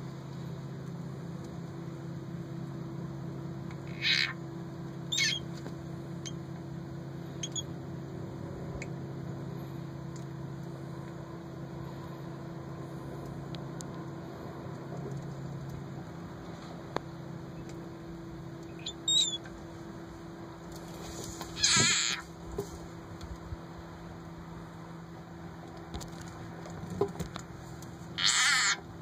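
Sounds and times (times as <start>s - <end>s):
low mechanical hum: 0.0s - 29.0s
loud high-pitched call: 3.9s - 4.4s, 5.1s - 5.5s, 7.4s - 7.6s, 18.7s - 19.5s, 21.6s - 22.3s, 28.2s - 28.8s.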